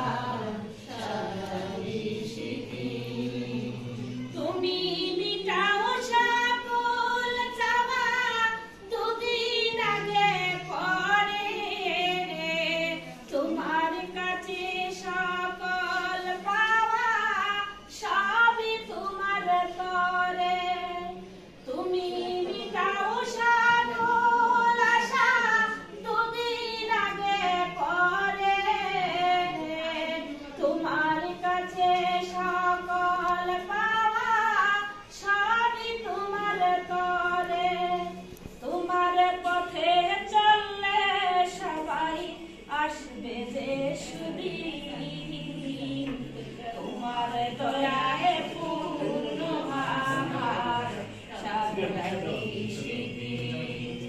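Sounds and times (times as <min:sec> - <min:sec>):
women singing together: 0:00.0 - 0:54.0.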